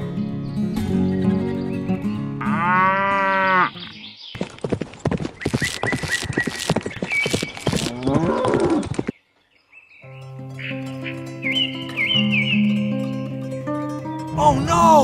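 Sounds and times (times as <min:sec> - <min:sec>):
cow mooing: 0:02.4 - 0:03.8
background music: 0:10.1 - 0:15.0.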